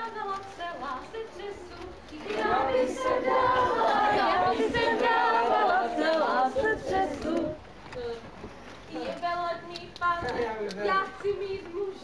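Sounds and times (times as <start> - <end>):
people singing together: 0.0 - 7.7
people chattering: 0.0 - 12.0.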